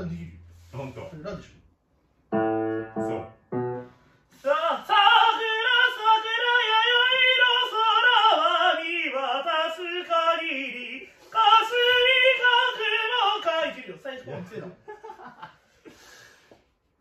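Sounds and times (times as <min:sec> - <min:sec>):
man singing with vibrato: 0:04.4 - 0:14.2
singer taking a breath: 0:15.9 - 0:16.6.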